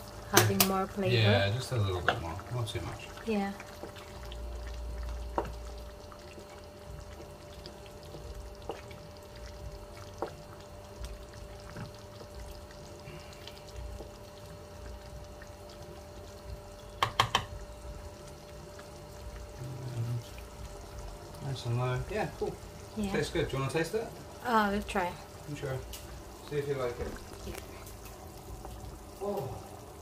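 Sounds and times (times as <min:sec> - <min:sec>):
sauce simmering and bubbling: 0:00.0 - 0:30.0
spoon knocking on pan: 0:16.9 - 0:17.6.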